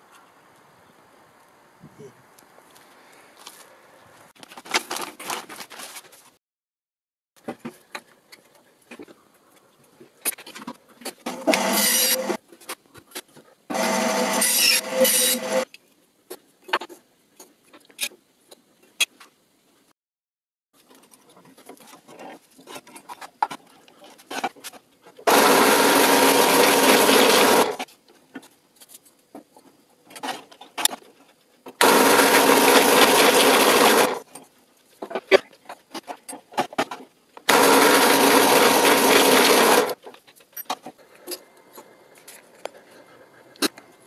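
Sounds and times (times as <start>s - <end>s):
drill press boring into wood: 11.3s - 12.4s, 13.7s - 15.6s, 25.3s - 27.8s, 31.8s - 34.2s, 37.5s - 40.0s.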